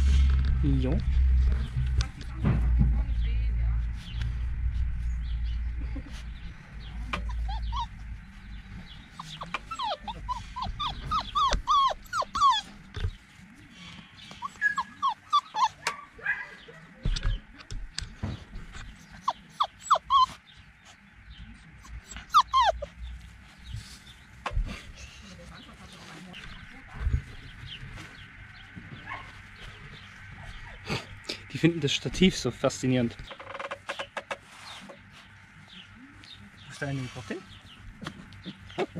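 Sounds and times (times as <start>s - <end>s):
low rumble: 0.0s - 13.3s
puppies whimpering: 5.9s - 13.3s, 14.2s - 17.4s, 18.7s - 20.9s, 21.7s - 24.2s, 38.4s - 38.9s.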